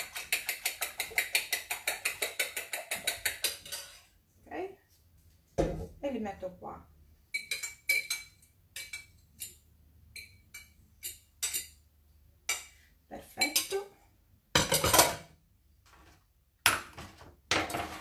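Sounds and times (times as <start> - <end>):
utensil clinking against bowls: 0.0 - 4.1, 7.3 - 11.8, 12.5 - 13.9.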